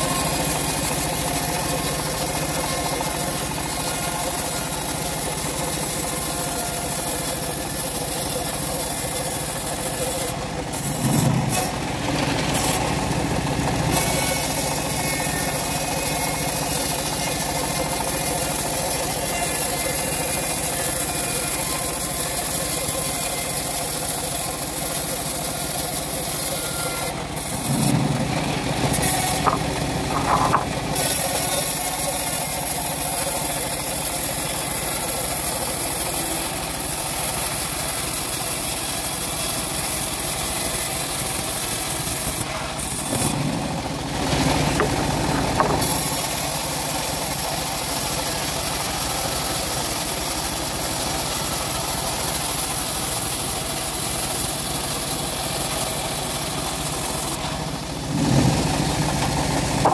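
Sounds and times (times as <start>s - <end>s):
bandsaw blade ripping timber: 25.1s - 32.5s, 39.1s - 46.9s.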